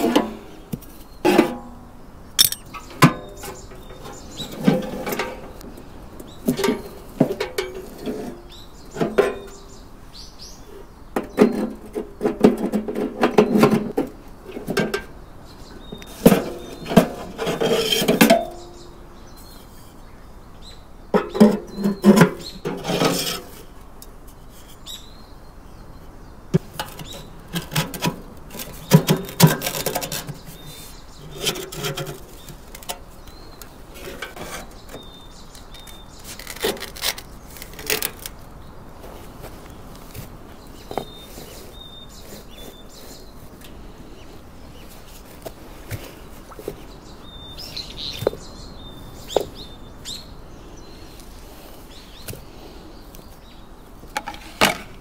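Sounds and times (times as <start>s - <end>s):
objects clattering and knocking: 0.0s - 5.6s, 6.4s - 9.6s, 11.2s - 15.1s, 26.6s - 33.3s, 34.0s - 35.1s
bird chirps: 0.5s - 7.0s, 34.7s - 37.7s, 40.6s - 45.1s, 46.0s - 51.2s.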